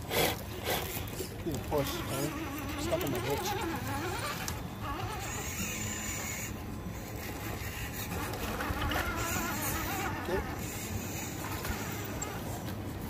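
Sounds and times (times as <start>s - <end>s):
rc truck motors whining: 0.0s - 13.0s.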